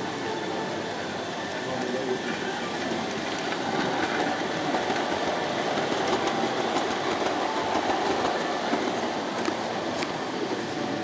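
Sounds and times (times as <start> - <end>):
model train wheels rattling: 2.7 - 10.0.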